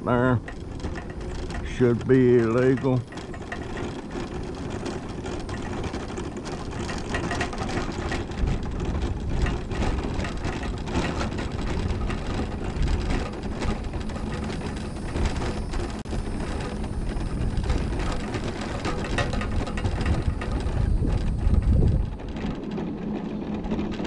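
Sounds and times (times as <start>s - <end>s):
mobility scooter motor and tyres: 0.0s - 24.0s
wind noise on microphone: 0.0s - 24.0s.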